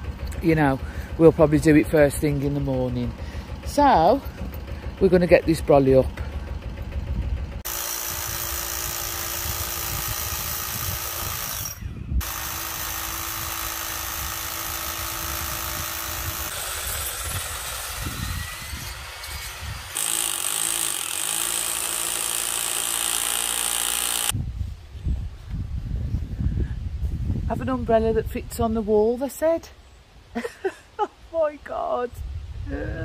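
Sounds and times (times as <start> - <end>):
power drill boring into brick: 7.7 - 24.4.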